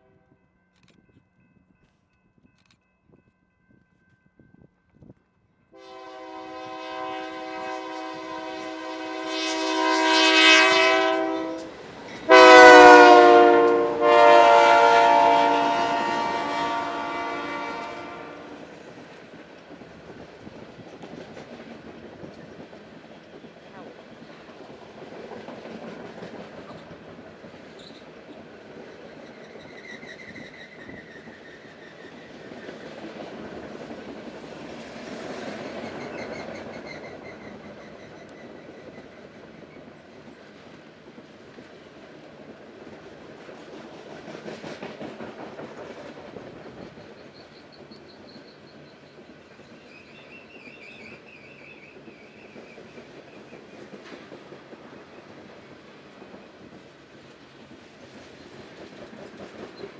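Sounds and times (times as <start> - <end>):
freight train rumble and clatter: 0.0 - 59.9
high wheel squeals: 29.2 - 32.3.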